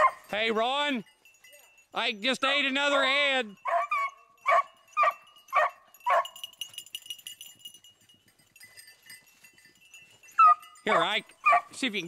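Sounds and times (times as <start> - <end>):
dog barking: 0.0 - 0.3, 3.6 - 6.4, 10.4 - 11.8.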